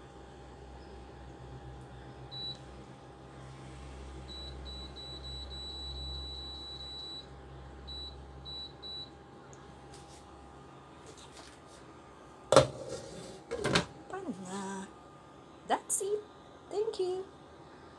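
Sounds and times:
steady low hum: 0.0s - 17.9s
cooktop control panel beeping: 2.3s - 2.7s, 4.3s - 7.3s, 7.9s - 9.2s.

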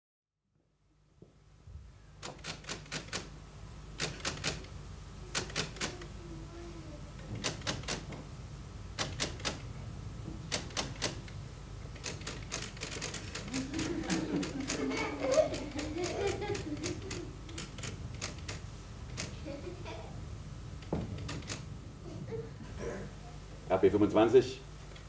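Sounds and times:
steady low hum: 0.6s - 25.0s.

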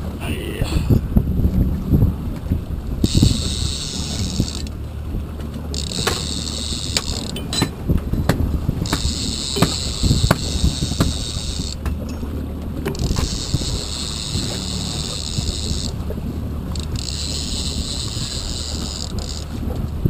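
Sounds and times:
low boat engine hum: 0.0s - 20.0s
reel clicks: 2.3s - 4.8s, 5.4s - 20.0s
fishing reel whirring: 3.0s - 4.8s, 5.7s - 7.5s, 8.8s - 11.8s, 12.9s - 19.8s.

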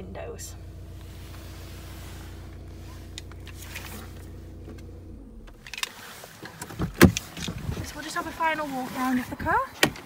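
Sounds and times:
diesel engine idling: 0.0s - 6.6s.

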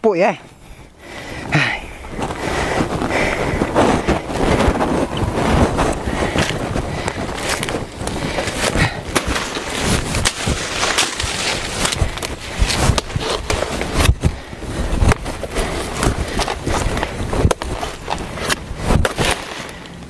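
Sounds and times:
dry leaves rustling and crackling: 1.9s - 14.5s.

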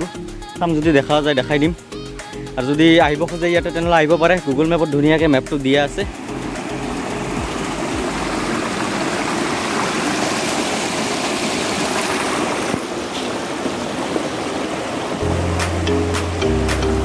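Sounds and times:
stream running over rocks: 4.9s - 17.0s.

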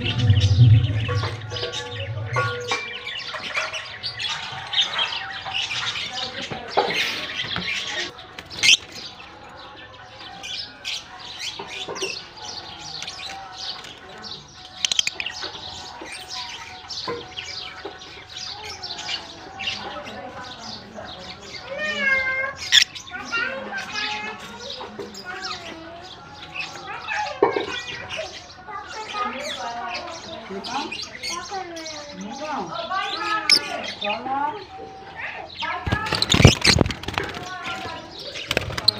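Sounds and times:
lovebirds chirping and chattering: 0.0s - 38.9s.

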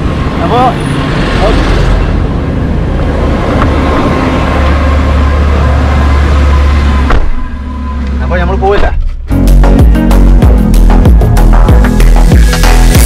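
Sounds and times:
road traffic rumble: 0.0s - 13.0s
car door shutting: 7.0s - 7.5s.

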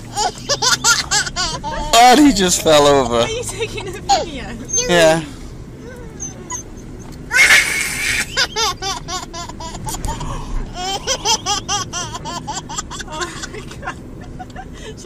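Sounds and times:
toddler laughing: 0.1s - 2.5s, 7.3s - 14.9s.

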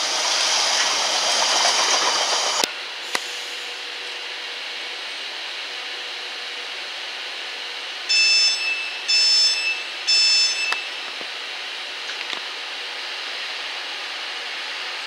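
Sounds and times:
diesel locomotive running: 0.0s - 15.0s
high-pitched beeps: 8.1s - 11.0s.

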